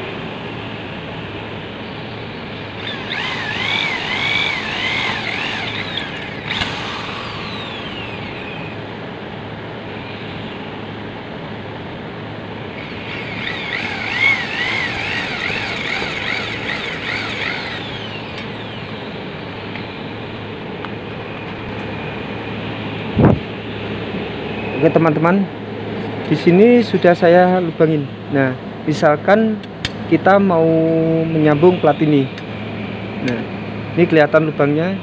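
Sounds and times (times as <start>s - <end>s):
steady background noise: 0.0s - 35.0s
drill bit squealing through metal: 2.8s - 8.8s, 12.8s - 19.1s.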